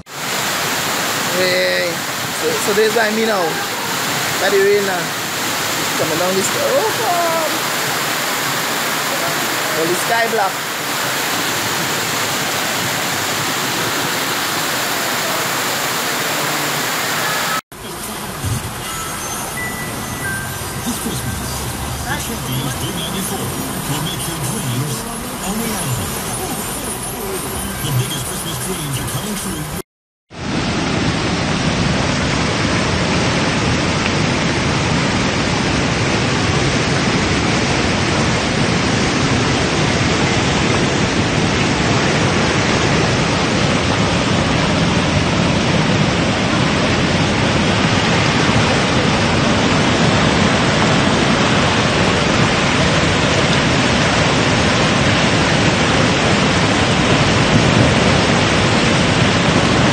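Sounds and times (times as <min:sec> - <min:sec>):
floodwater rushing: 0:00.1 - 0:59.9.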